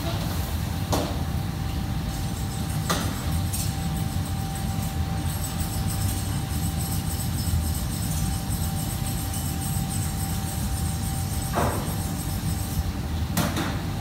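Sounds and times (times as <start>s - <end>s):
kitchen machinery hum: 0.0s - 14.0s.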